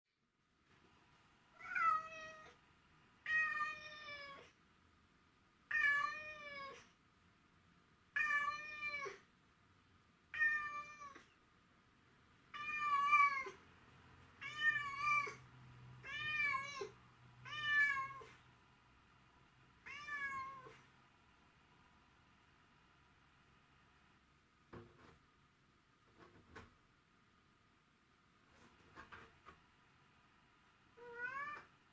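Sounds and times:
cat meowing: 0:01.6 - 0:02.6, 0:03.2 - 0:04.6, 0:05.7 - 0:06.9, 0:08.2 - 0:09.2, 0:10.3 - 0:11.3, 0:12.5 - 0:13.6, 0:14.4 - 0:15.4, 0:16.0 - 0:18.4, 0:19.8 - 0:20.8, 0:31.0 - 0:31.7.

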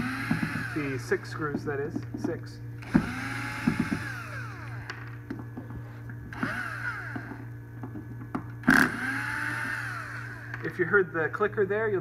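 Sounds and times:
cordless drill motor whining: 0:00.0 - 0:01.2, 0:02.8 - 0:05.2, 0:06.3 - 0:07.5, 0:08.6 - 0:10.7.

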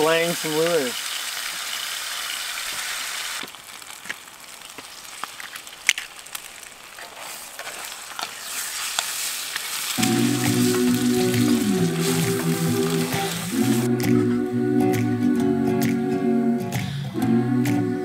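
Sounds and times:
food sizzling in skillet: 0:00.0 - 0:14.2
sharp pops and crackles: 0:03.4 - 0:14.2.

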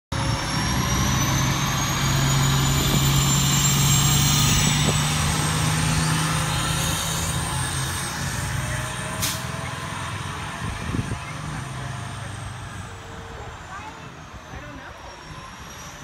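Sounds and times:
diesel engine droning: 0:00.1 - 0:16.0
high whine rising in pitch: 0:00.2 - 0:11.4.

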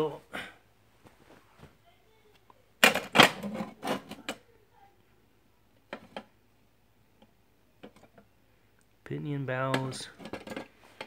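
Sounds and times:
postal scale clattering: 0:02.8 - 0:04.4, 0:09.7 - 0:11.0.

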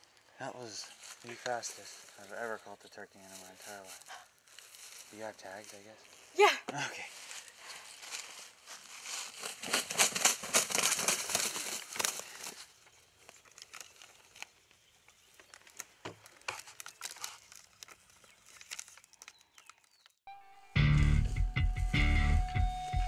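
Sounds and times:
dry leaves crunching and rustling: 0:03.2 - 0:06.4, 0:07.0 - 0:20.1
paper tag rustling: 0:15.4 - 0:20.2.

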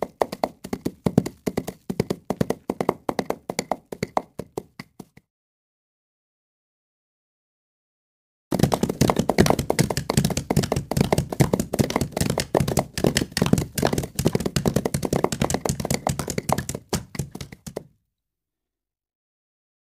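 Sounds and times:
horses galloping: 0:00.0 - 0:05.2, 0:08.5 - 0:17.9.

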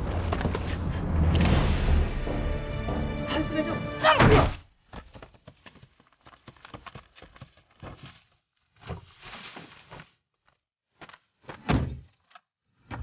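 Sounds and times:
footsteps and scuffling: 0:04.4 - 0:12.5.

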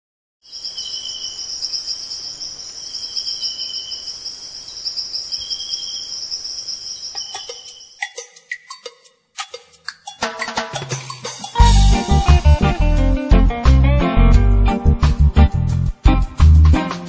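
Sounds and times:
lower insect trill: 0:00.4 - 0:08.2
shrill insect trill: 0:00.4 - 0:08.2
knocking percussion music: 0:07.2 - 0:12.6.

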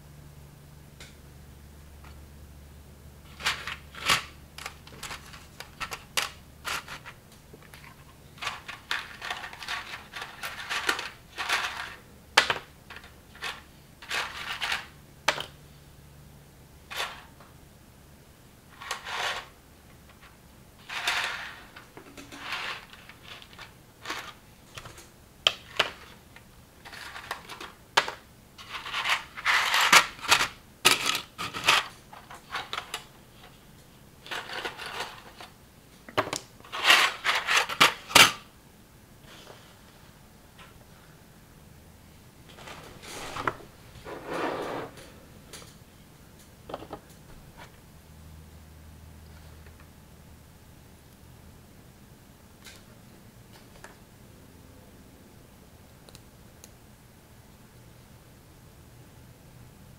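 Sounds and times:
rustling: 0:03.2 - 0:12.1, 0:42.5 - 0:45.2.

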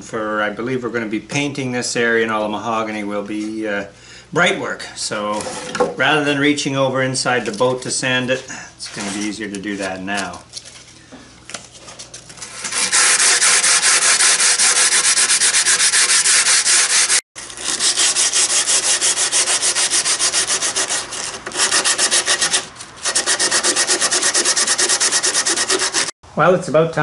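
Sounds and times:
sandpaper rubbing on wood: 0:12.5 - 0:26.1.

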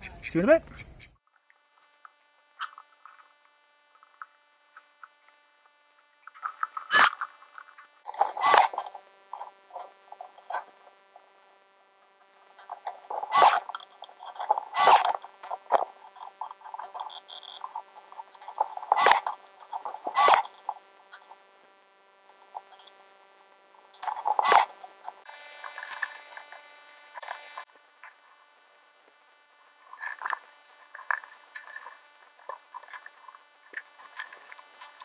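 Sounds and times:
mitre saw cutting wood: 0:06.7 - 0:07.3, 0:08.1 - 0:21.5, 0:23.9 - 0:27.7.

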